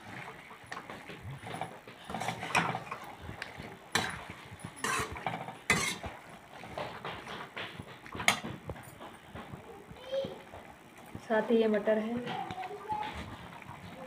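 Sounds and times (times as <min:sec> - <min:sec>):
metal ladle scraping a metal pan: 0:02.1 - 0:03.1, 0:04.8 - 0:06.2.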